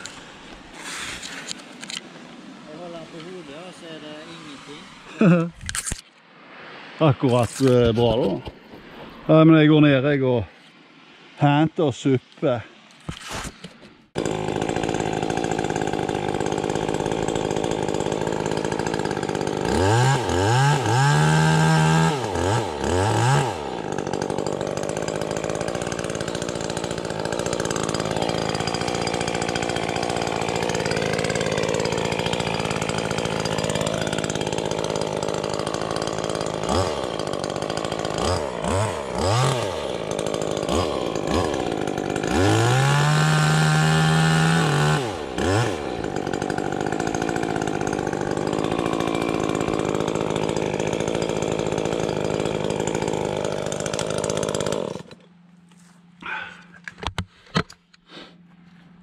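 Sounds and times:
chainsaw idling and revving: 0:14.2 - 0:55.6, 0:56.2 - 0:56.8.

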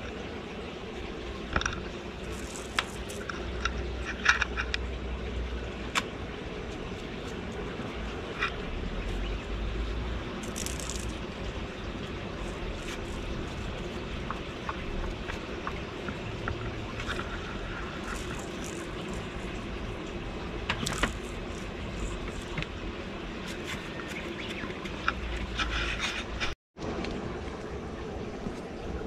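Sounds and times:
steady background hum: 0:00.0 - 0:29.0
toy ball rolling: 0:02.2 - 0:03.3, 0:10.4 - 0:11.2, 0:16.5 - 0:19.4.

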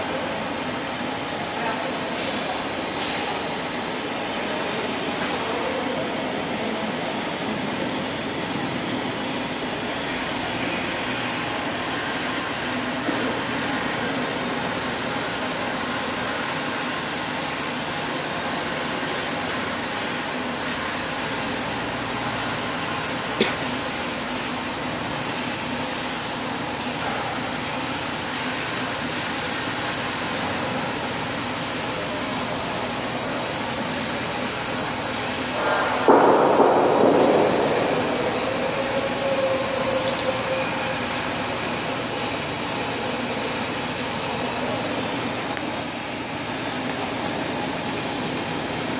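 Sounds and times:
rough burst of noise: 0:34.7 - 0:46.8.

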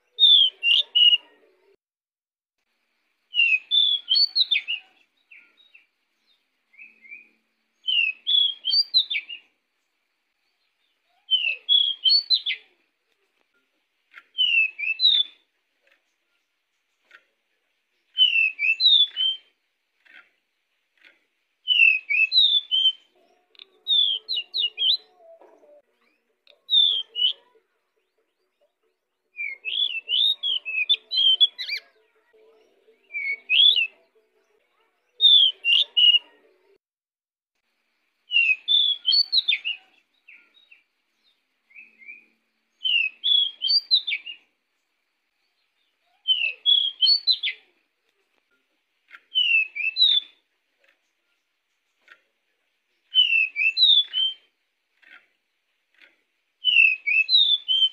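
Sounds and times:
bird song with sliding whistles: 0:03.3 - 0:04.8, 0:06.8 - 0:09.4, 0:11.3 - 0:12.6, 0:14.4 - 0:15.4, 0:18.1 - 0:19.5, 0:21.7 - 0:23.1, 0:23.8 - 0:25.1, 0:29.4 - 0:31.8, 0:35.2 - 0:36.2, 0:38.3 - 0:40.4, 0:41.8 - 0:44.4, 0:46.3 - 0:47.6, 0:49.3 - 0:50.4, 0:53.1 - 0:54.5, 0:56.0 - 0:57.9.

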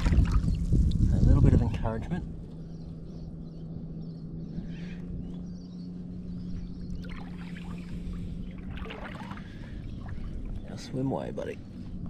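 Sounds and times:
water splashing and trickling: 0:00.0 - 0:01.3, 0:07.0 - 0:11.3
steady low hum: 0:00.0 - 0:12.0.

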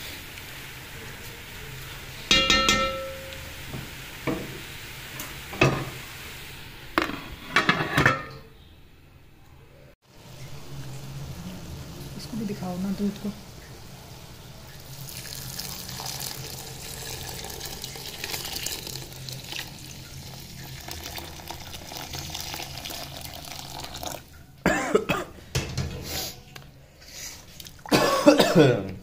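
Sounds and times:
milk pouring into pot: 0:14.7 - 0:24.4
person coughing: 0:24.7 - 0:25.4, 0:27.9 - 0:28.9.

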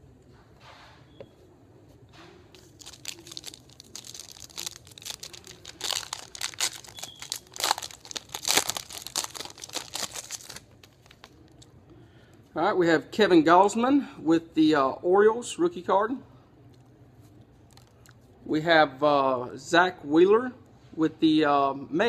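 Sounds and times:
foil wrapper crinkling and tearing: 0:02.6 - 0:11.6.

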